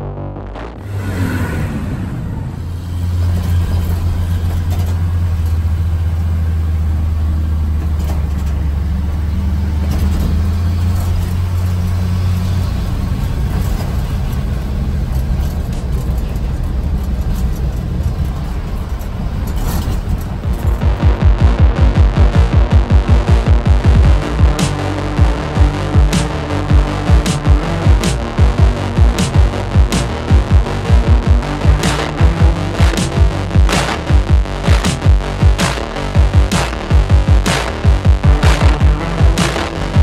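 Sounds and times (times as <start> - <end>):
engine and tyre drone inside vehicle: 0.0 - 40.0
van driving past: 0.8 - 22.6.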